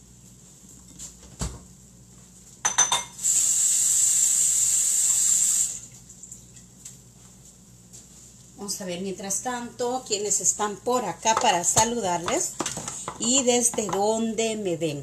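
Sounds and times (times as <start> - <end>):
dishes clattering: 2.7 - 3.2.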